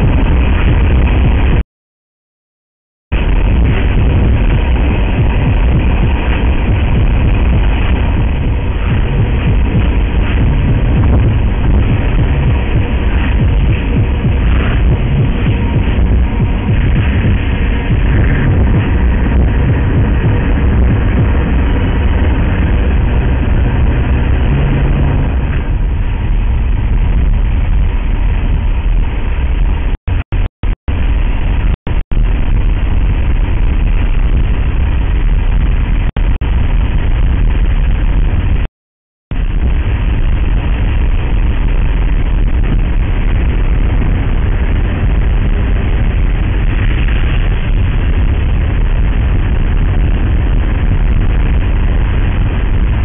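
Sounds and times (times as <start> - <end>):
car road noise from inside cabin: 3.2 - 30.0, 39.4 - 53.0.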